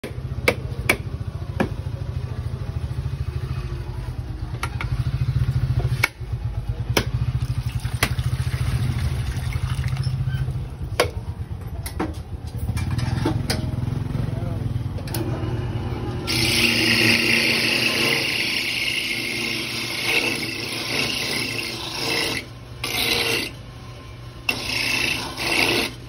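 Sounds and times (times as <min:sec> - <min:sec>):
coconut grater motor pulsing: 0:15.2 - 0:23.8, 0:24.4 - 0:26.0.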